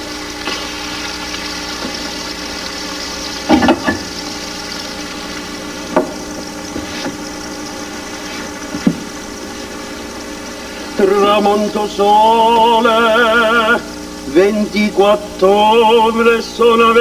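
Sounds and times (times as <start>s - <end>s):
meat sizzling in frying pan: 0.0s - 14.3s
pans or utensils knocking: 3.5s - 4.1s.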